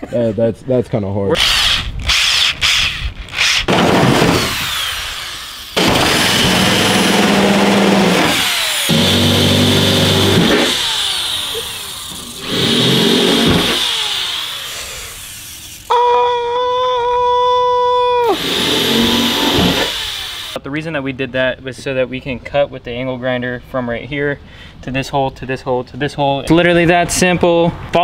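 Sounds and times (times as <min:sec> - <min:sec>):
electric drill boring through metal: 0:01.4 - 0:16.0, 0:18.3 - 0:20.6
drill bit scraping metal: 0:04.5 - 0:15.9.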